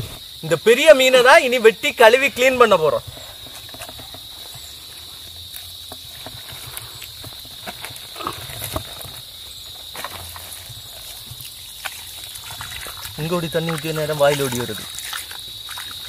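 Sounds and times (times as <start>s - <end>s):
water splashing and dripping: 10.0s - 16.0s.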